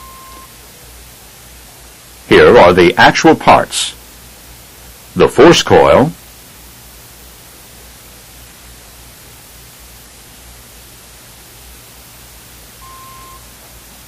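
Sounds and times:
short mid-pitched beep: 0.0 - 0.5, 12.8 - 13.4
tape hiss: 0.0 - 14.0.

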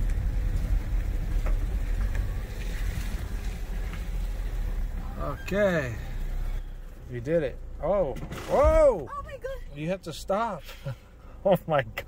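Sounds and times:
car rolling rumble: 0.0 - 12.0.

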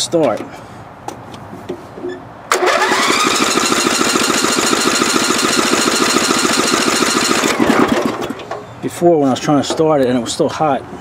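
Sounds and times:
electric starter cranking engine: 2.5 - 8.6.

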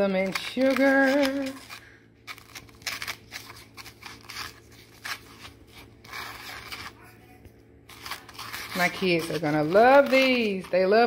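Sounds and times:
gritty scratching rustles in sugar: 0.0 - 11.0.

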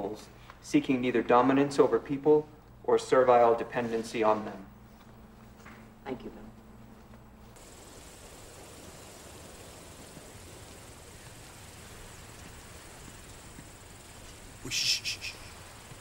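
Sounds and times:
soft hiss: 0.0 - 16.0
high-pitched insect drone: 7.6 - 16.0.

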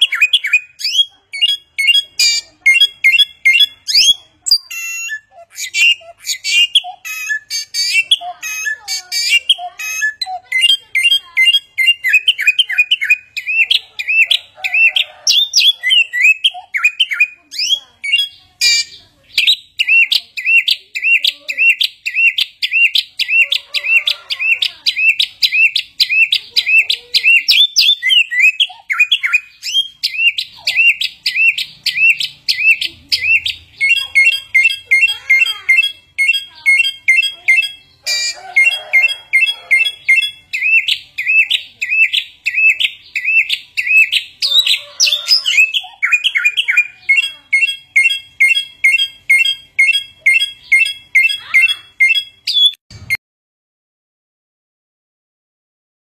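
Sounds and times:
bird chirping: 0.0 - 53.2.

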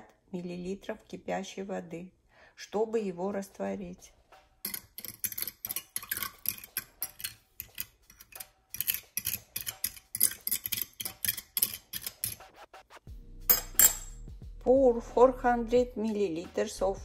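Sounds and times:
fork scraping ceramic bowl: 4.7 - 12.4.

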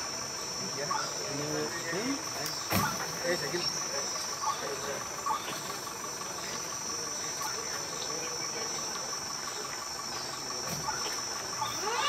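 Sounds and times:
distant voices: 0.0 - 12.0
high-pitched insect drone: 3.2 - 12.0.

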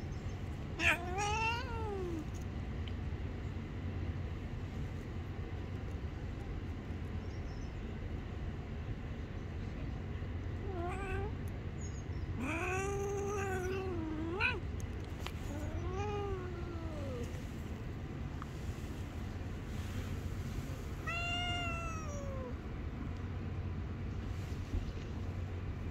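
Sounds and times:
cat yowling: 0.8 - 2.3, 10.7 - 11.4, 12.4 - 14.6, 15.4 - 17.5, 21.0 - 22.6.

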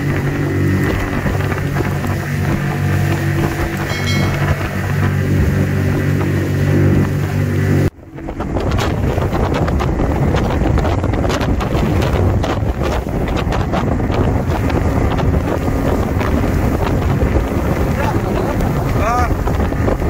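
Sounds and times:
steady drone: 0.0 - 8.7
outboard motor running: 0.0 - 20.0
water rushing and slapping hull: 0.0 - 20.0
wind buffeting microphone: 0.0 - 20.0
irregular knocks: 3.1 - 6.4.

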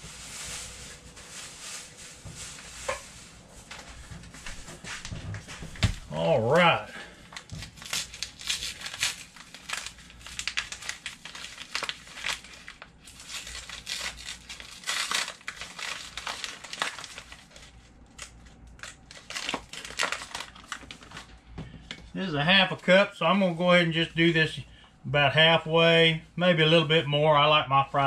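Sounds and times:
sugar bag crinkling: 6.1 - 21.4.

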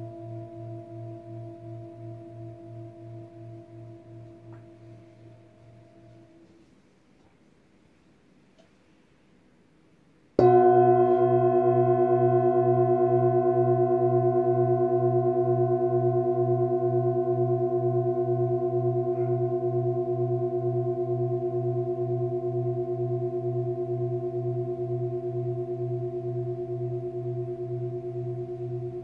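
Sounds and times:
singing bowl ringing: 0.0 - 6.4, 10.4 - 29.0
low pulsing hum: 0.0 - 6.5.

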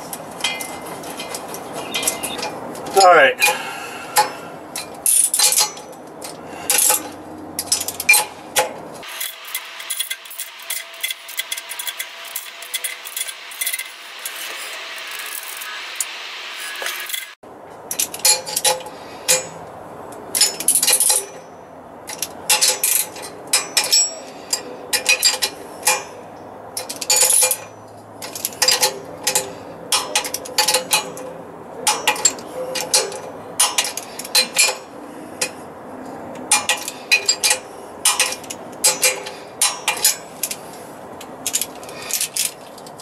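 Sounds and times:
metal tools clinking: 0.1 - 3.6, 4.2 - 19.6, 20.3 - 26.2, 26.8 - 35.6, 36.4 - 43.0
hand ratchet clicking: 7.6 - 16.1, 36.4 - 40.6.

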